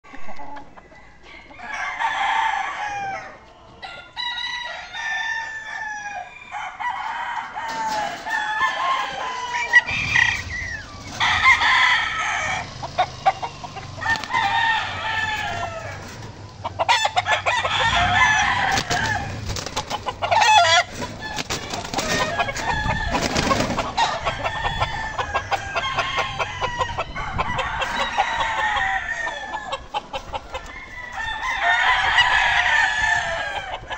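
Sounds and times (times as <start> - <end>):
clucking: 0.0 - 1.6, 12.7 - 31.1
roosters crowing: 0.0 - 33.9.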